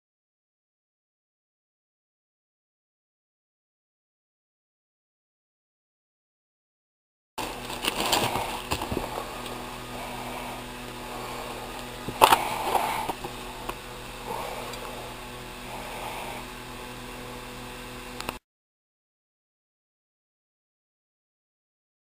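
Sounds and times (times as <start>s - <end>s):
plastic sleeves rustling: 7.4s - 9.6s
steady electrical hum: 7.4s - 18.4s.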